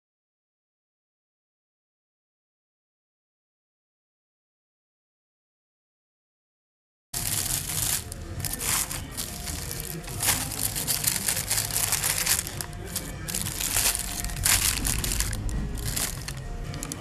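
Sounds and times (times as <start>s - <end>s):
background music: 7.2s - 17.0s
paper wrapper crinkling: 7.2s - 17.0s.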